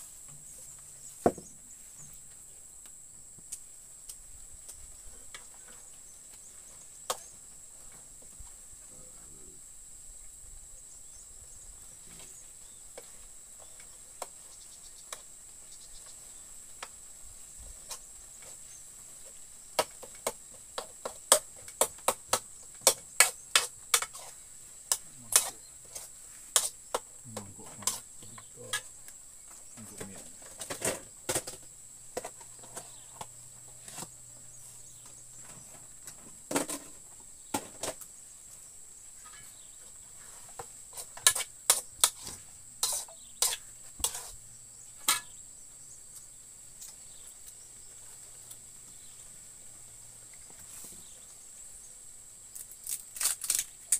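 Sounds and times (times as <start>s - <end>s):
faint high-pitched hiss: 0.0s - 53.9s
metal spoon scraping a wok: 23.2s - 26.8s, 40.9s - 44.4s, 45.0s - 45.4s.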